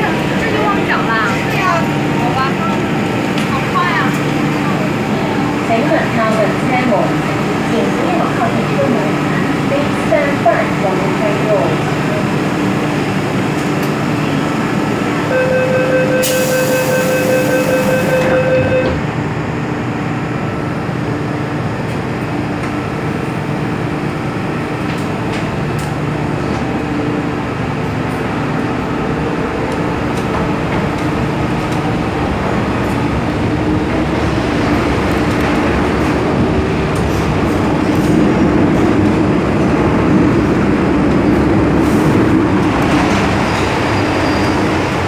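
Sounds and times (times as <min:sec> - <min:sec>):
train traction motor whine: 0:12.2 - 0:19.5
door-closing warning beeps: 0:15.3 - 0:19.0
train doors sliding shut: 0:16.2 - 0:19.1.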